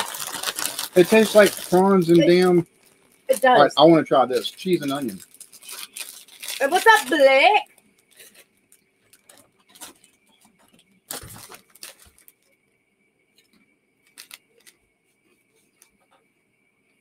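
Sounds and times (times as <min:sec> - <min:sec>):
crisps being crunched: 0:00.0 - 0:10.2, 0:11.0 - 0:12.5, 0:14.0 - 0:14.8
crisp packet crinkling: 0:00.0 - 0:10.4, 0:11.0 - 0:12.6, 0:14.0 - 0:14.8.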